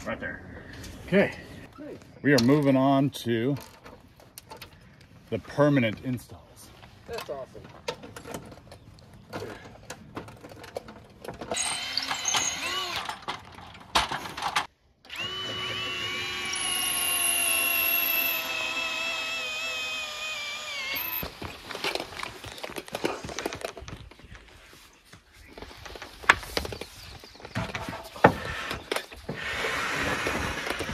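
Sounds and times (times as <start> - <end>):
handling knocks and clicks: 7.1 - 11.6
cordless drill driving fastener: 15.0 - 21.4.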